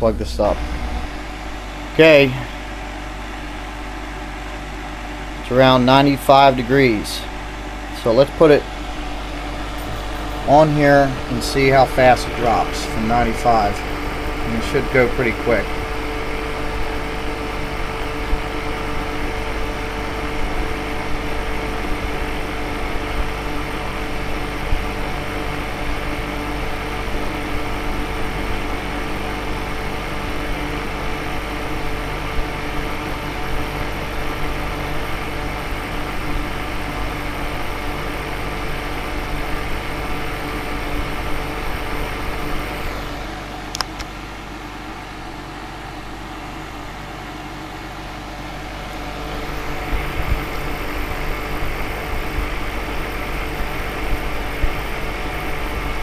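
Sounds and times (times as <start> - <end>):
air conditioner fan whirring: 0.0 - 56.0
switch click: 43.7 - 44.1.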